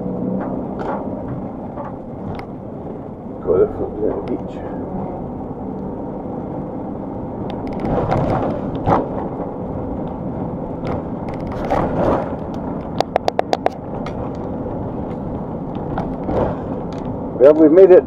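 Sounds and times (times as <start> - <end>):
knocks and rattles over bumps: 0.0 - 3.4, 7.5 - 18.0
road noise rumble in vehicle cabin: 0.0 - 18.0
sharp ticks: 12.5 - 14.5.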